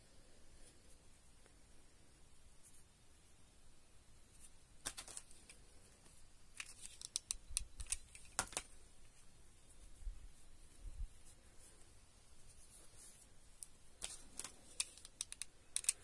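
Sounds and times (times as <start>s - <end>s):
craft pieces clicking and tapping: 6.6s - 8.7s, 14.0s - 16.0s.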